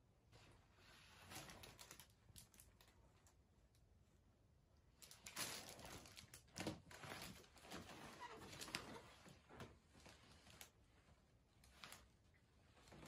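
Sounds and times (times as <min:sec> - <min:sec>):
soft rustling: 0:05.1 - 0:13.0.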